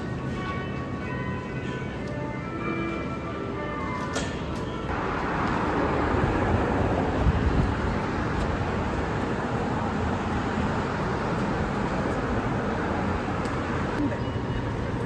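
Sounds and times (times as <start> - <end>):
cars passing on wet street: 4.9 - 14.0.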